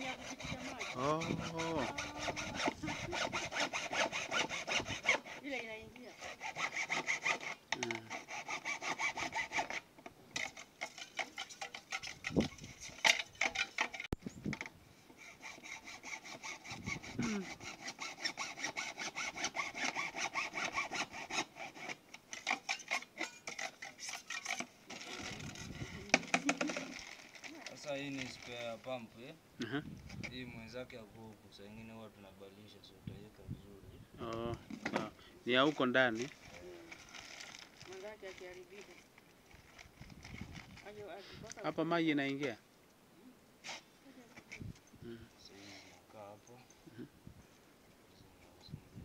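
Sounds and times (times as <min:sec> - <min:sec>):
hacksaw cutting plastic pipe: 0:00.0 - 0:09.8, 0:10.4 - 0:27.5.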